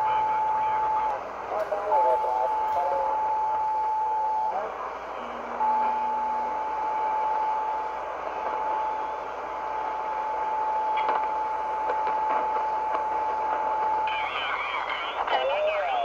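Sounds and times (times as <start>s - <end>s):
radio band noise hiss: 0.0s - 16.0s
steady radio whistle: 0.0s - 16.0s
static crackles: 8.2s - 16.0s.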